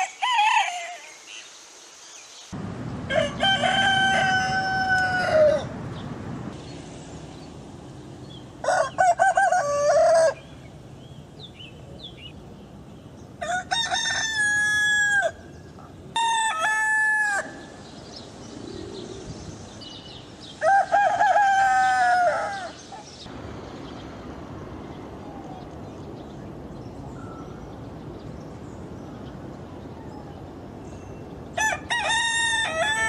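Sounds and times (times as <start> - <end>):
faint background noise: 0.0 - 33.0
rooster crowing: 3.1 - 5.7, 8.6 - 10.5, 13.4 - 15.4, 16.2 - 17.7, 20.6 - 22.8, 31.6 - 33.0.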